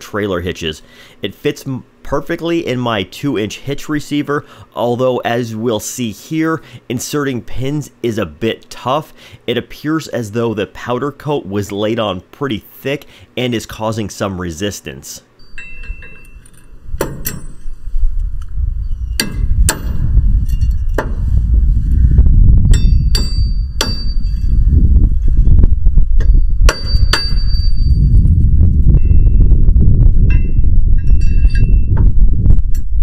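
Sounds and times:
metal pins clanking: 15.4s - 17.8s
low rumble: 16.7s - 33.0s.

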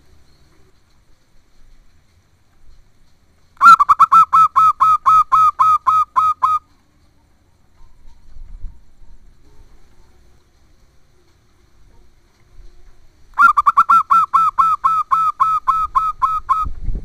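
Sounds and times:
dove cooing: 3.6s - 6.7s, 13.4s - 16.7s.

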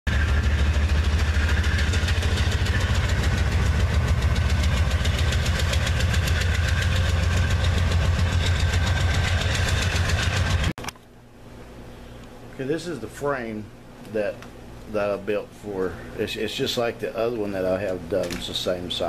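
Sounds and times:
diesel locomotive passing: 0.1s - 10.7s.

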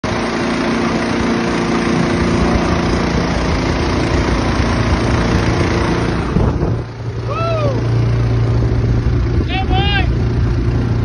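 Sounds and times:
boat motor running: 0.0s - 11.0s.

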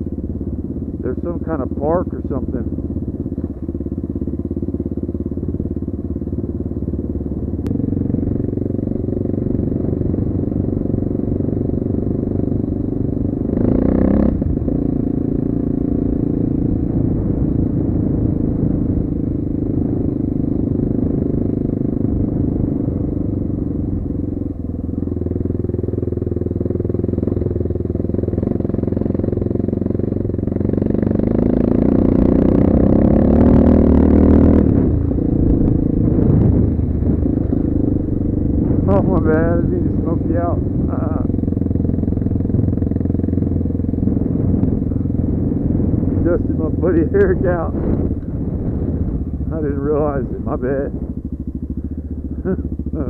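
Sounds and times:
dirt bike engine revving: 13.4s - 17.1s, 30.6s - 51.1s.

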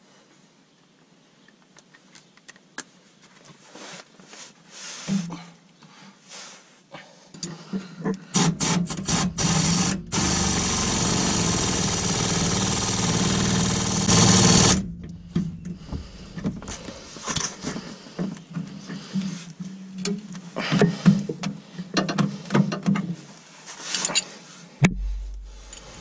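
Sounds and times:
air wrench driving nut: 8.3s - 17.0s, 25.0s - 26.0s.

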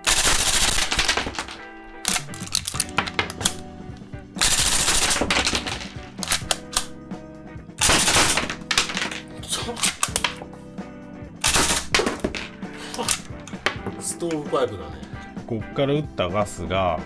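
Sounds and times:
cap gun firing bursts: 0.0s - 3.7s, 4.4s - 6.9s, 7.8s - 9.2s, 11.4s - 12.4s
background music: 0.0s - 17.0s.

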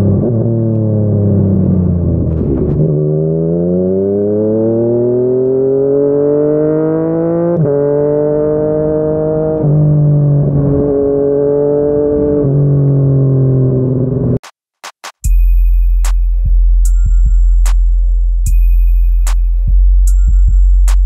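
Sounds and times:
motorcycle engine revving: 0.0s - 14.4s.

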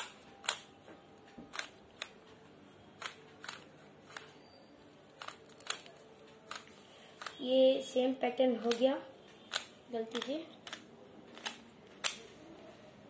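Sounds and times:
puzzle cube plastic clicks: 3.0s - 4.4s, 5.1s - 7.4s, 8.6s - 8.9s, 9.5s - 12.3s.

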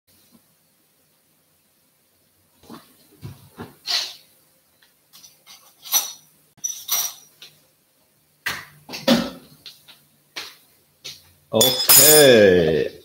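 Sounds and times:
dishes and utensils clinking: 5.2s - 7.4s, 11.6s - 12.4s.

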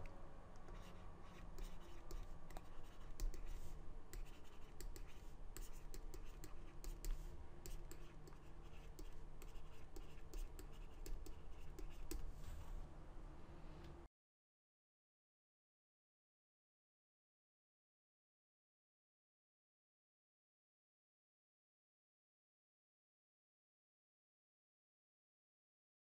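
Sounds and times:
steady low hum: 0.0s - 14.1s
stylus scratching on tablet: 0.6s - 12.4s.

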